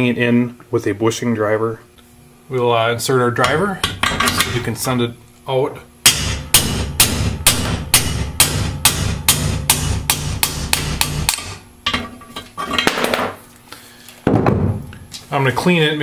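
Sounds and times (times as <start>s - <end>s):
hammer striking metal driver: 6.0s - 12.1s.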